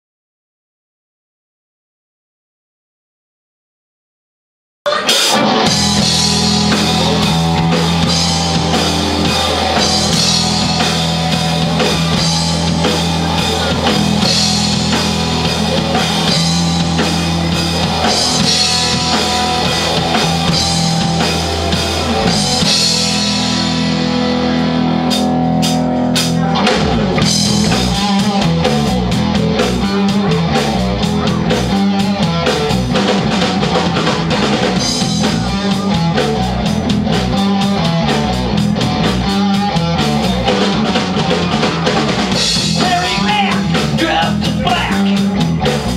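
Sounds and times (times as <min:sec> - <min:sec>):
drum kit with cymbals: 0:04.9 - 0:45.9
electric bass: 0:04.9 - 0:45.9
electric guitar: 0:04.9 - 0:45.9.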